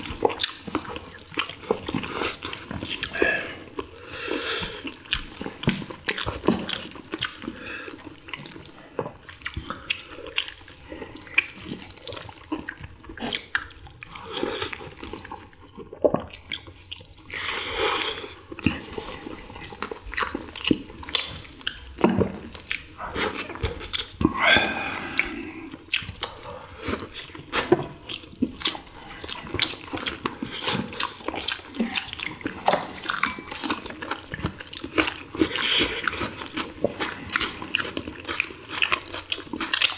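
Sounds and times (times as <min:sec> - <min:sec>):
people chewing and lip smacking: 0:00.0 - 0:39.9.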